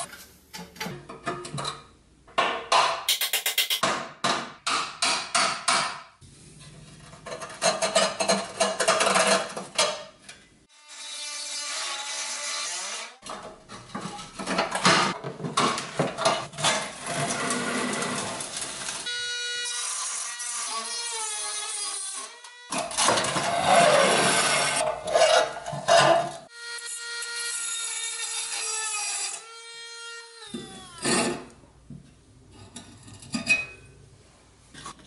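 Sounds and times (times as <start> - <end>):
rotary tool grinding steel: 19.0 - 25.4, 26.5 - 31.2.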